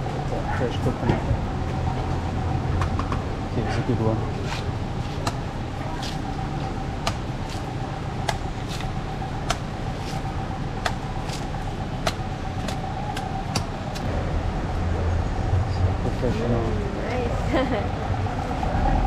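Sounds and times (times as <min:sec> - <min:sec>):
road traffic rumble: 0:00.0 - 0:19.0
machete chopping coconut husk: 0:04.5 - 0:06.3, 0:07.0 - 0:14.1.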